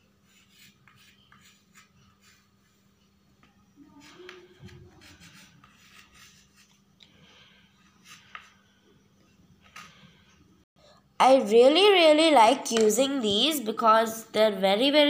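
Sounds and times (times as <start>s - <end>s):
chalk scratching on slate: 0.2s - 2.9s, 3.9s - 6.8s.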